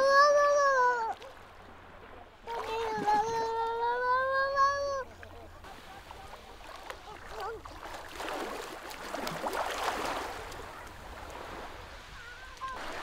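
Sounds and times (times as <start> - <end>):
wave washing over pebbles: 5.7 - 13.0.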